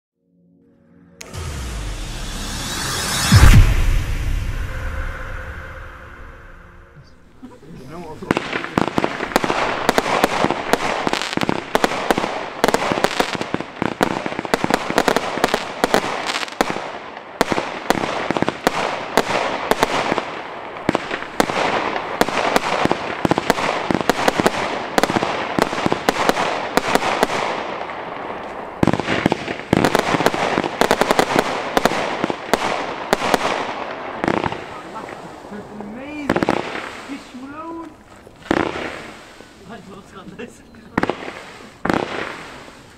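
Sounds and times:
firework battery shots and bursts: 8.2 - 39.8, 40.9 - 42.9.

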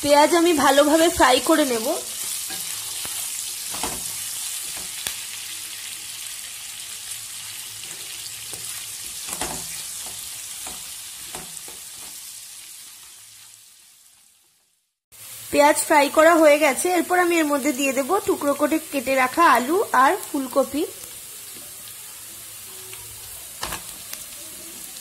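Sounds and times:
onions sizzling in oil: 0.0 - 25.0.

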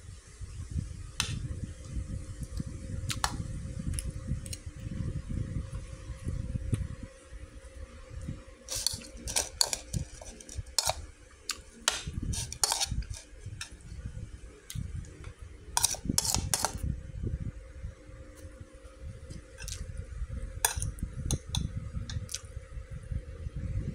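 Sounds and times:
metal spoon scraping bowl: 8.6 - 13.8, 15.7 - 16.8, 19.6 - 19.8, 20.7 - 21.7.

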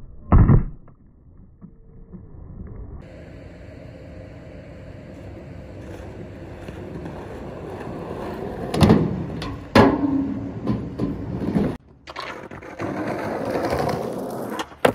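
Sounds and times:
skateboard wheels rolling on asphalt: 3.0 - 14.9.

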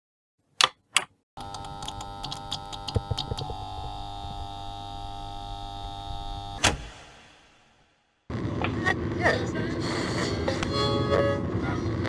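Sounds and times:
electronic power-up hum: 1.4 - 7.3.

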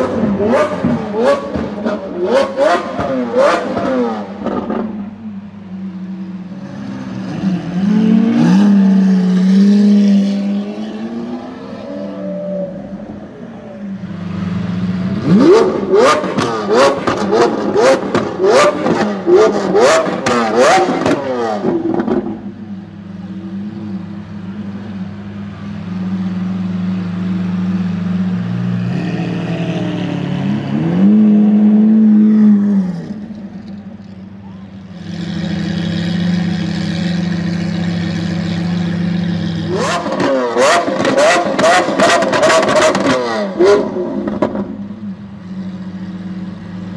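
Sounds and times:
car engine revving: 0.0 - 34.2, 34.8 - 46.9
car engine idling: 12.2 - 28.7.

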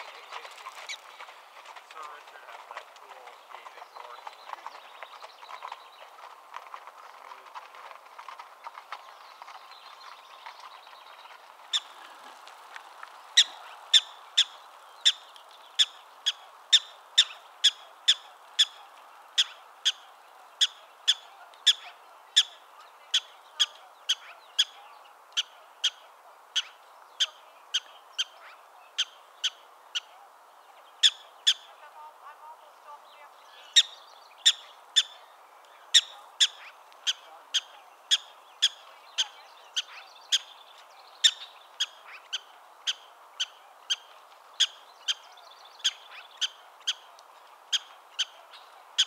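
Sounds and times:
prairie dog chirping barks: 13.4 - 40.6, 41.2 - 49.0.

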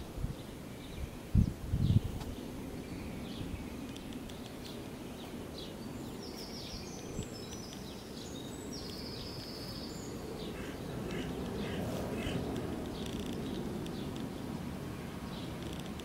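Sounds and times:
birds chirping: 1.9 - 16.0
high rapid bird trills: 5.7 - 14.6.

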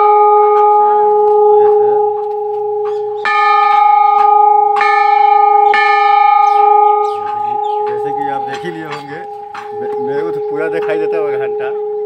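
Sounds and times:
temple bell ringing: 0.0 - 12.0.

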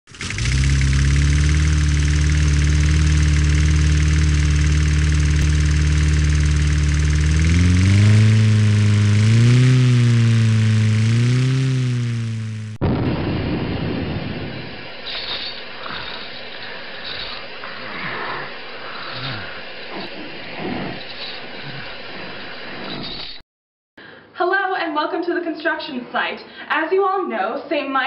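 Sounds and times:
large engine idling and revving: 0.1 - 12.8.

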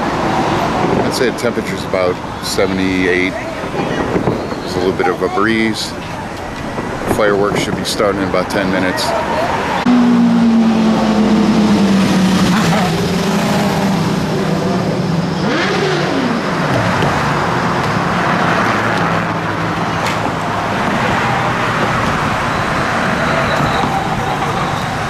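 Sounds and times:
traffic passing: 0.0 - 25.0
passing car engine note: 9.6 - 19.7.

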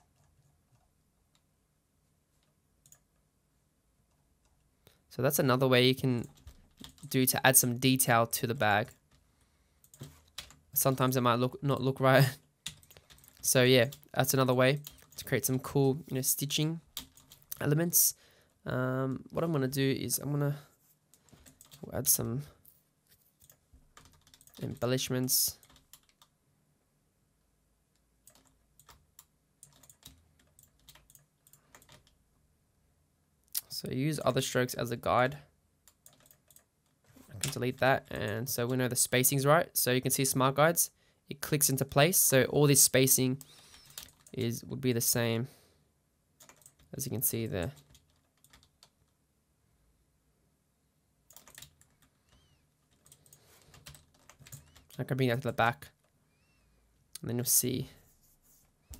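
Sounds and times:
faint keyboard clicks: 9.8 - 11.0, 25.6 - 26.4, 43.4 - 44.4, 51.3 - 55.0.

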